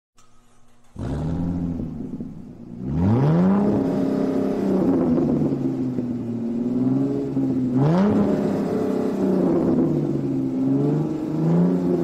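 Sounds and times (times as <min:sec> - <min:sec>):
car engine revving: 0:00.2 - 0:12.0.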